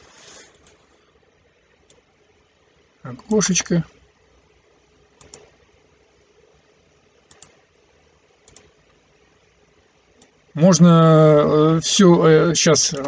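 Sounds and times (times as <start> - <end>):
computer mouse clicks: 5.2 - 5.6, 7.2 - 7.6, 8.4 - 9.0, 10.2 - 10.4.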